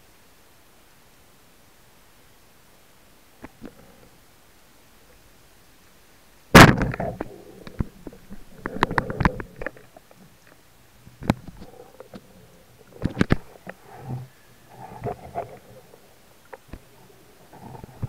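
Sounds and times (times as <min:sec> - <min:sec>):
speargun firing underwater: 0:06.6 - 0:07.2.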